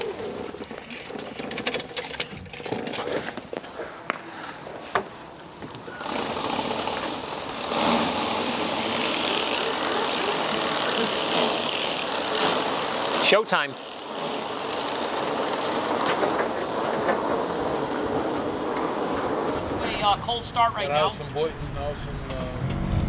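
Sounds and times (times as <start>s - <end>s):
steady mechanical running noise: 5.6s - 23.0s.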